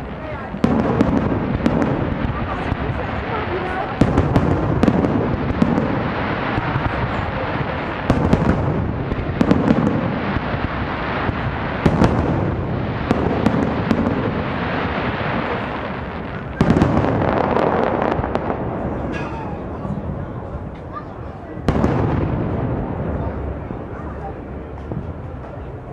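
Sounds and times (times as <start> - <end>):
fireworks crackling pops: 0.0 - 19.7
deep fireworks booms: 0.0 - 25.9.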